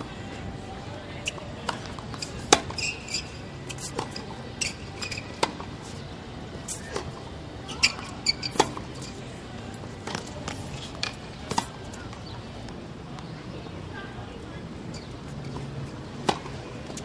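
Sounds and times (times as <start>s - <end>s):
shoes squeaking on court: 1.2s - 12.4s, 14.9s - 17.0s
tennis ball bouncing: 1.6s - 5.8s, 7.8s - 9.1s, 10.0s - 12.3s, 15.4s - 17.0s.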